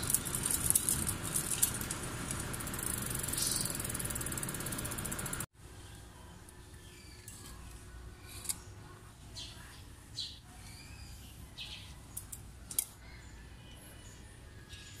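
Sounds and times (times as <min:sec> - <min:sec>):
clicks and scrapes of metal parts: 0:08.3 - 0:08.7, 0:12.1 - 0:13.0.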